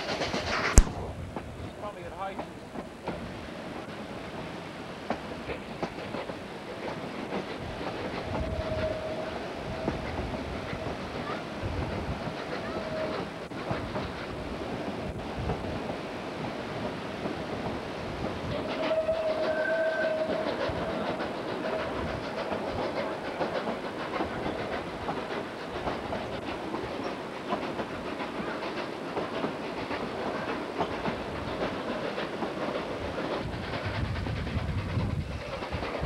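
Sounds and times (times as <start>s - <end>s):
train wheels clicking over rail joints: 0.0s - 36.0s
steam whistle: 8.4s - 9.4s, 18.6s - 20.7s.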